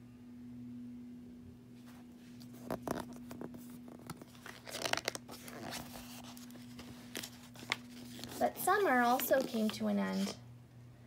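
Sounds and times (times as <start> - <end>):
faint steady hum: 0.0 - 11.0
book pages rustling: 1.8 - 10.4.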